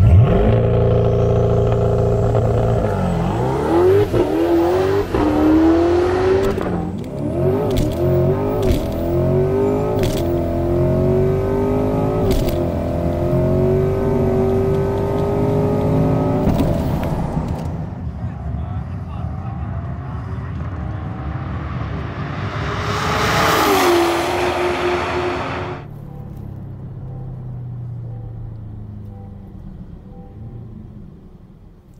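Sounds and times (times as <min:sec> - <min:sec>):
car engine accelerating hard: 0:00.0 - 0:18.6, 0:19.3 - 0:25.9.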